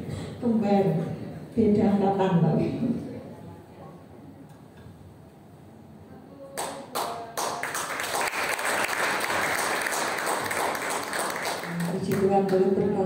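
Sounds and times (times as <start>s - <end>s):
audience applause: 7.4s - 12.1s.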